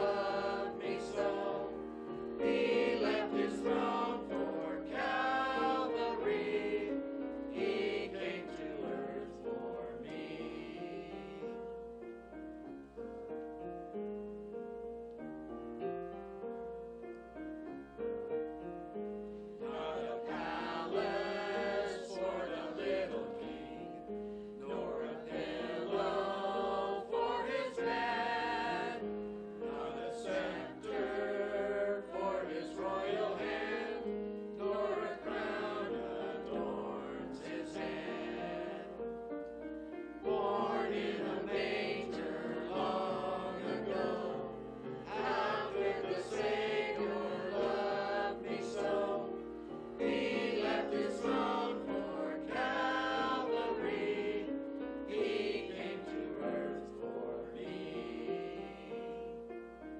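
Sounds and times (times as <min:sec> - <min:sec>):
choir singing in parts: 0:00.0 - 0:12.0, 0:19.3 - 0:59.9.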